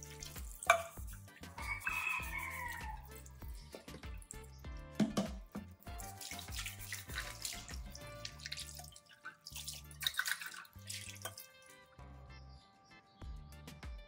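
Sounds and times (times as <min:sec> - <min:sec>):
tap water splashing into metal mug: 0:00.0 - 0:02.0, 0:02.8 - 0:11.8.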